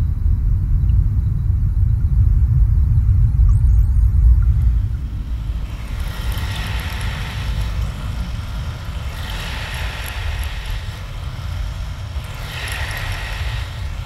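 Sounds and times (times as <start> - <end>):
rushing swirling water: 5.1 - 14.0.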